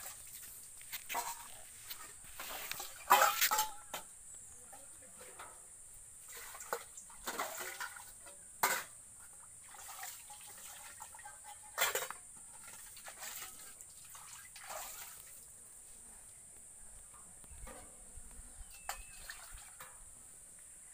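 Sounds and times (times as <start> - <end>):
water splashing and sloshing: 0.0 - 3.9, 6.2 - 15.5, 18.9 - 20.0
steel dishes clattering: 1.1 - 1.6, 2.4 - 4.0, 6.7 - 9.0, 11.7 - 13.7.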